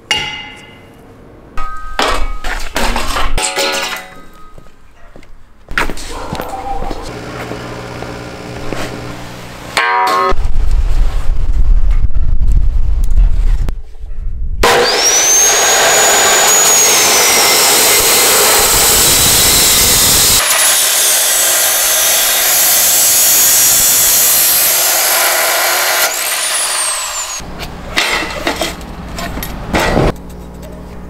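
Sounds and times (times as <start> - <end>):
cut-off saw motor whine: 7.1 - 9.6, 14.6 - 27.4.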